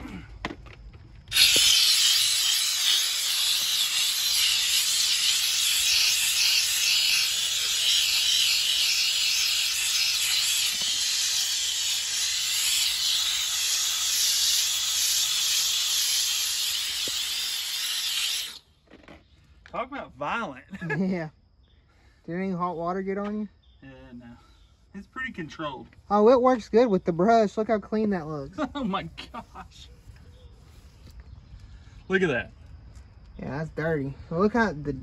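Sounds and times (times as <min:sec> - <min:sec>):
steam cleaner hissing: 0:01.3 - 0:18.6.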